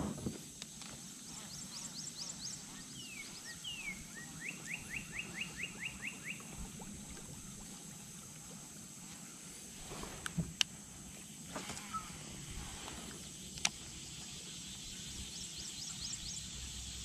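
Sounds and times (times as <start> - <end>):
steady high hiss: 0.0 - 17.0
songbirds singing: 0.7 - 6.6, 11.6 - 17.0.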